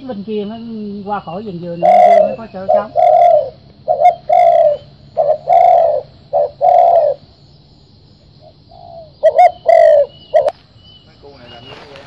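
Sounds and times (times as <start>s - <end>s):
dove cooing: 0.0s - 7.4s, 8.4s - 10.6s.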